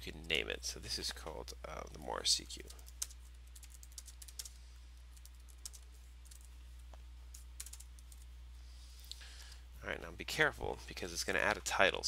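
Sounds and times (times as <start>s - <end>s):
faint low hum: 0.0s - 12.0s
computer keyboard typing: 2.6s - 6.5s, 7.3s - 8.2s.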